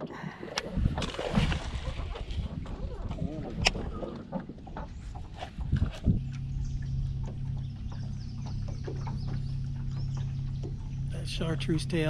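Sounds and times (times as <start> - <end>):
electric trolling motor humming: 0.6 - 12.0.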